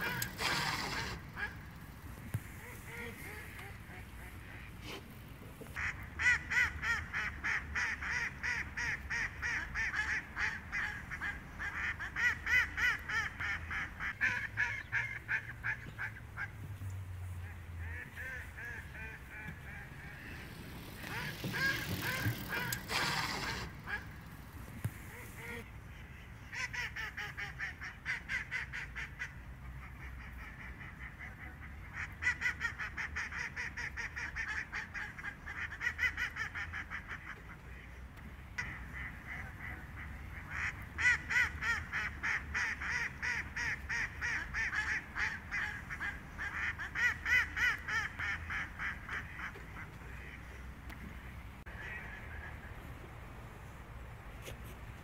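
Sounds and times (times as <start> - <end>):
ducks quacking: 0.0 - 1.7, 2.4 - 5.0, 17.3 - 38.0, 38.6 - 50.7, 51.7 - 53.1.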